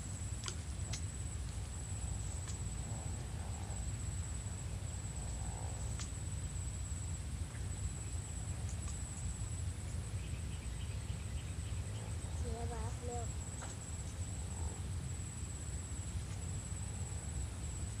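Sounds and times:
insects trilling: 0.0 - 18.0
faint clicks: 0.4 - 1.6, 2.4 - 2.7, 5.9 - 6.2.

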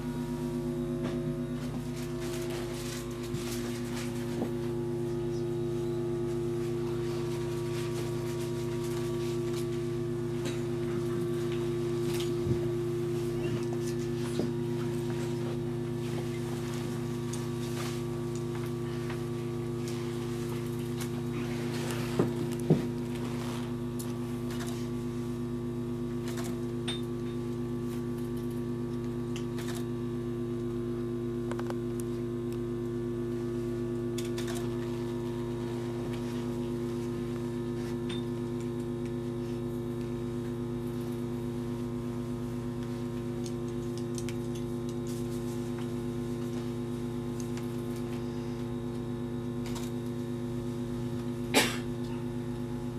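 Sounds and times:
steady hum of held tones: 0.0 - 52.9.

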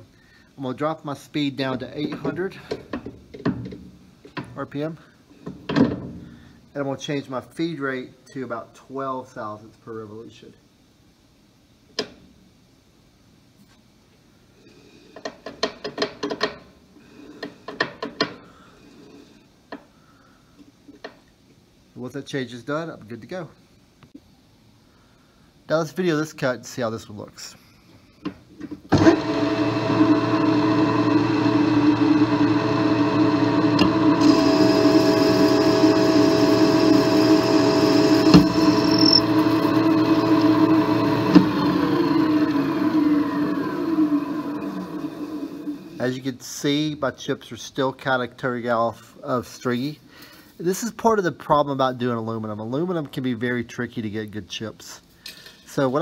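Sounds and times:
lathe machine hum: 28.9 - 46.0
thin high whine: 33.0 - 46.1.

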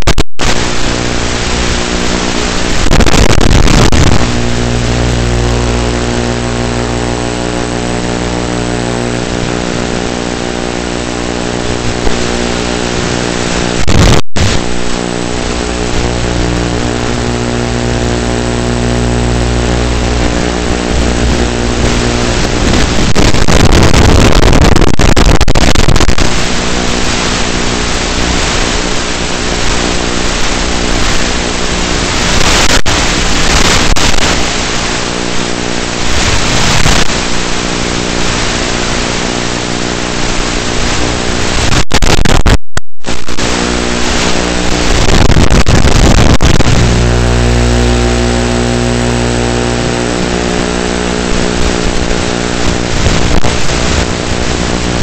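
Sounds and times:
rush of air noise: 0.0 - 55.0
electric motor and propeller buzzing: 14.6 - 41.6, 43.4 - 55.0.

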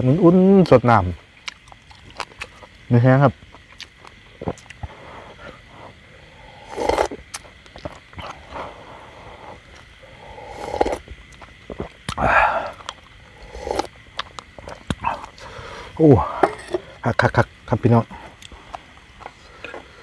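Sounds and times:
person slurping broth: 6.4 - 7.2, 8.2 - 11.0, 11.7 - 13.9.

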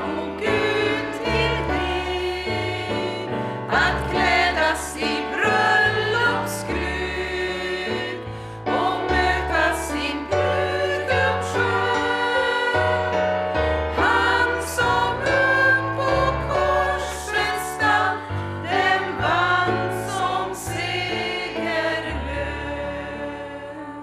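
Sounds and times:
digital piano accompaniment: 0.0 - 24.0
women singing a hymn: 0.0 - 24.0.

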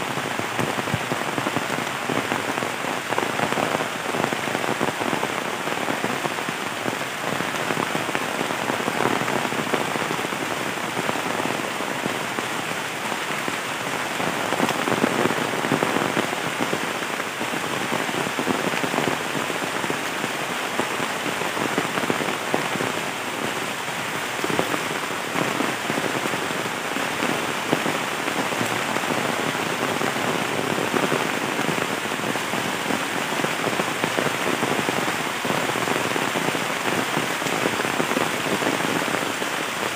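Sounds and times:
heavy rain on trees: 0.0 - 39.9.

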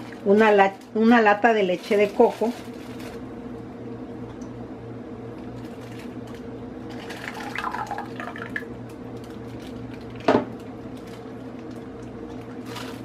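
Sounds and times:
steady low hum: 0.0 - 13.0
liquid pouring into pot: 7.0 - 8.7.

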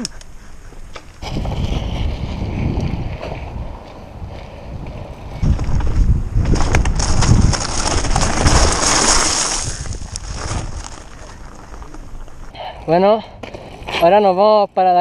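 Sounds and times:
bike tyres rolling over gravel: 1.0 - 15.0
wind buffeting microphone: 1.2 - 12.6.

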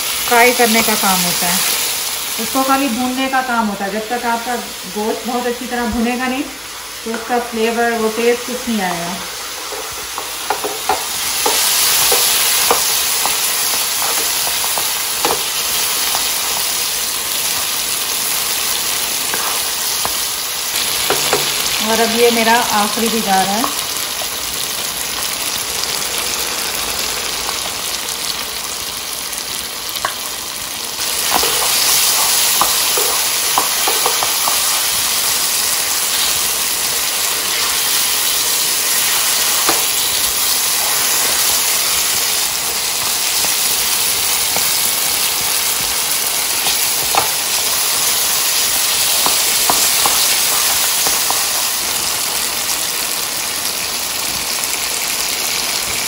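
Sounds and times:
meat sizzling in a pan: 0.0 - 56.0
spatula scraping and knocking pan: 9.6 - 16.8, 19.3 - 21.8, 31.1 - 35.1, 37.3 - 41.5, 48.5 - 51.7.

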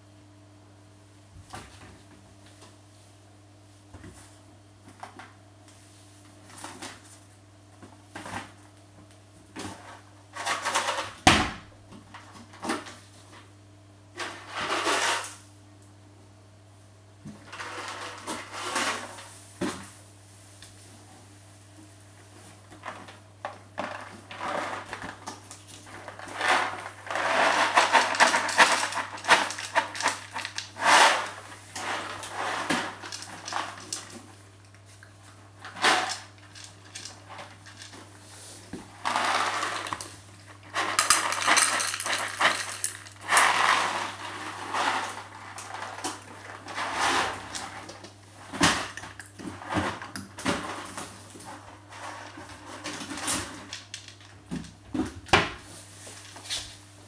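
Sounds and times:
cat crunching food: 40.8 - 43.9.

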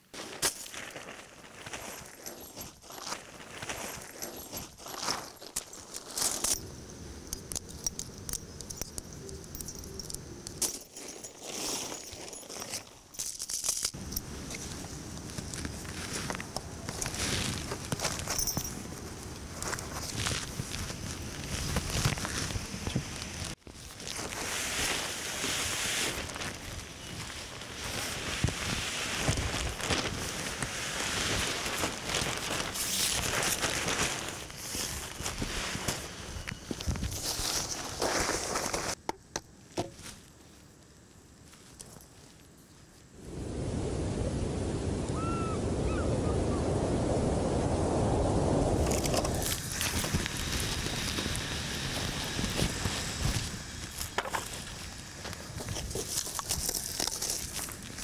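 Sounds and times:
tent fabric rustling: 0.0 - 6.6, 10.7 - 39.0.

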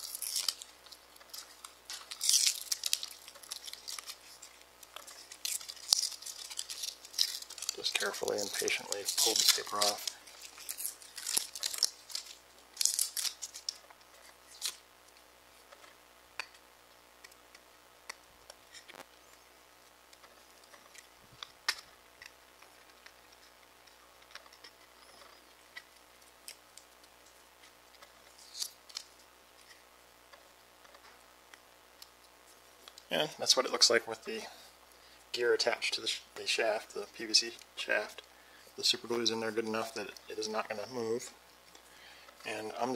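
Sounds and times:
paper backing peeled off: 0.0 - 14.8.

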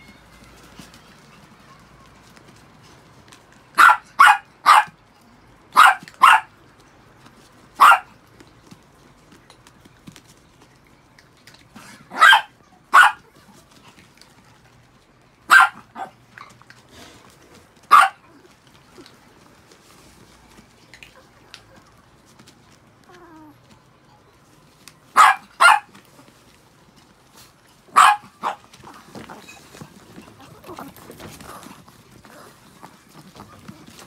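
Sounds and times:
small dogs barking: 3.7 - 5.0, 5.7 - 6.6, 7.7 - 8.2, 11.8 - 13.4, 15.4 - 16.3, 17.8 - 18.6, 25.1 - 26.0, 27.9 - 29.2.

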